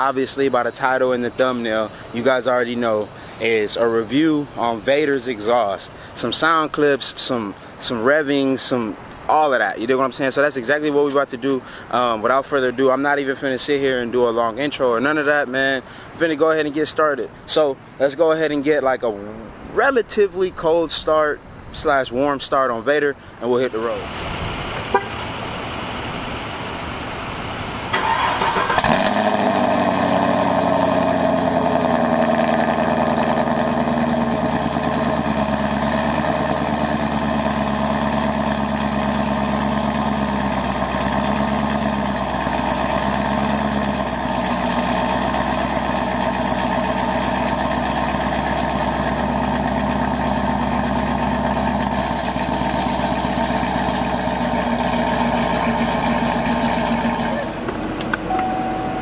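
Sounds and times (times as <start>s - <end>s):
car engine starting and idling: 23.6s - 59.0s.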